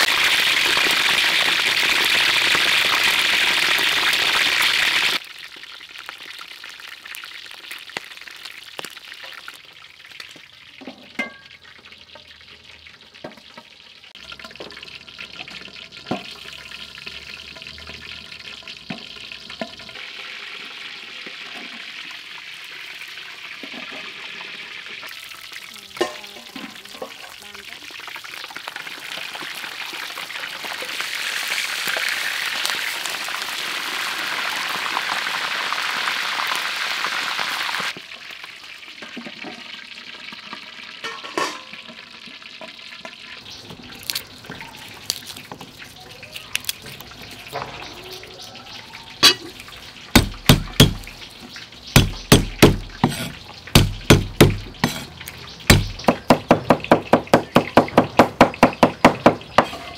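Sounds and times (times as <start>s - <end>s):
meat sizzling in hot oil: 0.0s - 59.8s
cleaver chopping on wooden board: 50.2s - 51.1s, 52.0s - 55.1s, 55.7s - 59.4s.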